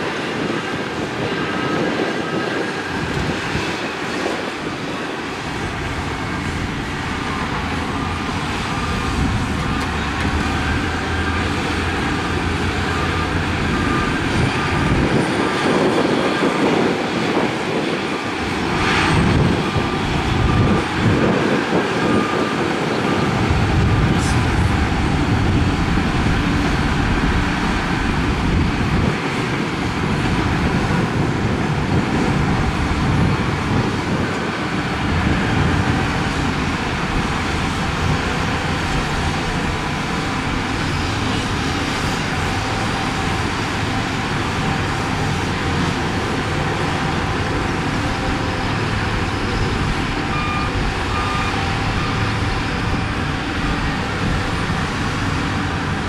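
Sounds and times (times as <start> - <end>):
bulldozer diesel engines running: 0.0 - 56.0
reversing alarm beeps: 6.0 - 16.6, 19.0 - 28.3, 49.4 - 53.0.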